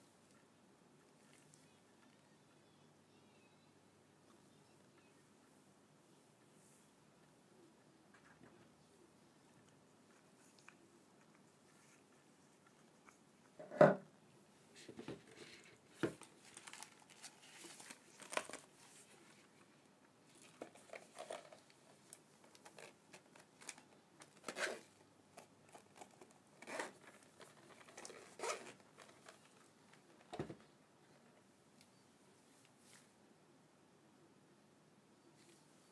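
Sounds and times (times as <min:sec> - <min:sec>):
zipper rasps: 0:26.6 - 0:27.0, 0:28.0 - 0:28.8.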